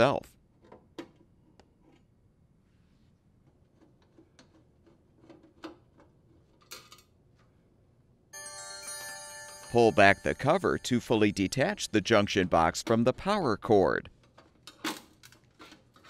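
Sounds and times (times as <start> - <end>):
chime: 8.4 - 12.2.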